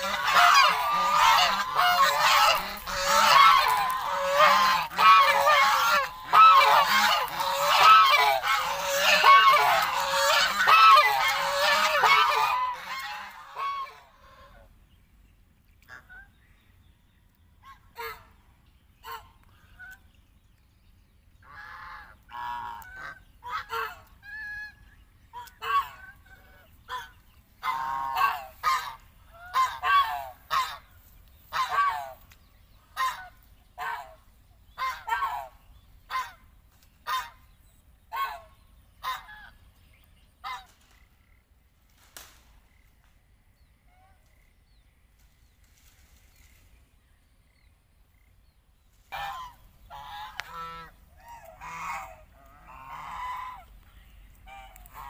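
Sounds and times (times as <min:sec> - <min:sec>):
geese honking: 0:00.0 - 0:14.8, 0:17.6 - 0:18.4, 0:19.0 - 0:20.1, 0:21.4 - 0:37.5, 0:38.1 - 0:39.6, 0:49.1 - 0:55.0.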